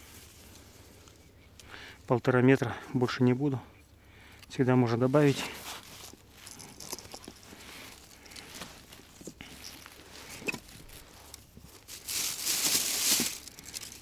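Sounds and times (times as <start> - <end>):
rustling of foam decoys: 4.9 - 14.0.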